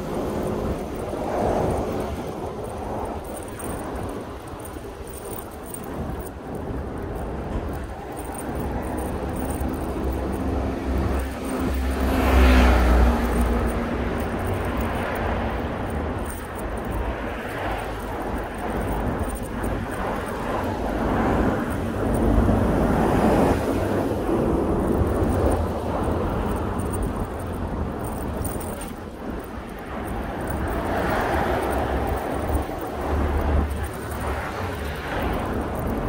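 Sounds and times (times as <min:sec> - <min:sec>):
city road traffic: 0:00.0 - 0:36.0
vehicle engine passing: 0:08.9 - 0:15.6.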